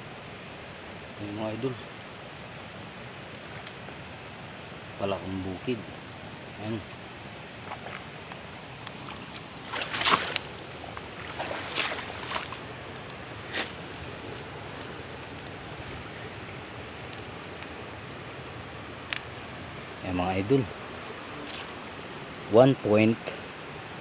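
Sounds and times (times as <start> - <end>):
night insects chirping: 0.0 - 24.0
movement through wet grass and mud: 6.0 - 20.1.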